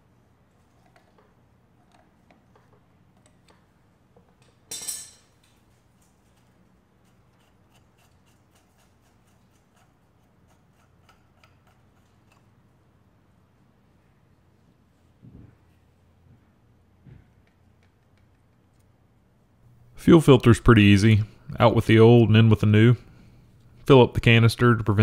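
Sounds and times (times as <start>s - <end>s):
sharp rasp: 7.0s - 12.5s
hand tools clicking and tapping: 7.4s - 12.5s.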